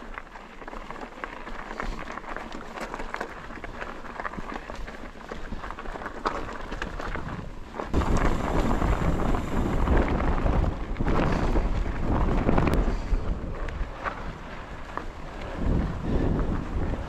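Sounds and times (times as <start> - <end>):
bike rattling and clicking: 0.0 - 17.0
bike tyres rolling over gravel: 0.0 - 17.0
wind buffeting microphone: 6.6 - 17.0.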